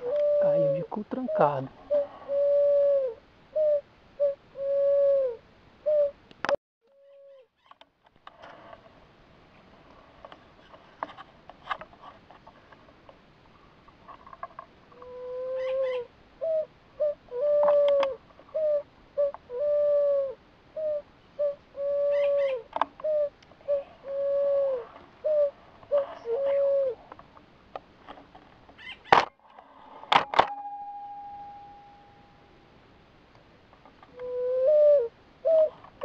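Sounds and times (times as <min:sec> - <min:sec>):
dove-like cooing calls: 0:00.0 - 0:06.2, 0:06.9 - 0:07.5, 0:14.9 - 0:27.2, 0:34.1 - 0:36.0
rustling dry stalks: 0:20.8 - 0:30.5.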